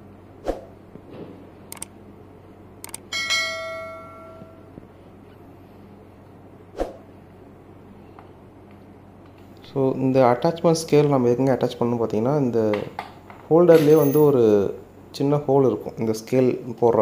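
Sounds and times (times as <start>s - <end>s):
sharp clicks: 1.7s - 1.9s, 2.8s - 3.1s
bright bell chime: 3.1s - 4.7s.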